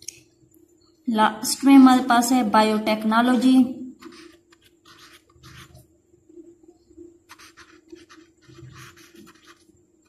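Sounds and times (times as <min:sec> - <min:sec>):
marker scratching on paper: 0:04.0 - 0:05.9, 0:07.3 - 0:09.8.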